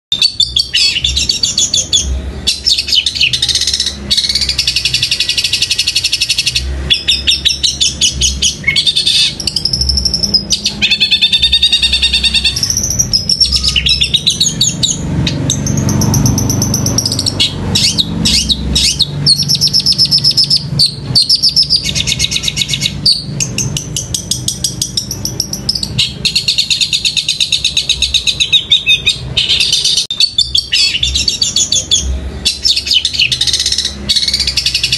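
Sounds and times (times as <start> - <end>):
mimicked sparrow chirps: 0.1 - 34.9
shrike chattering song: 0.1 - 34.9.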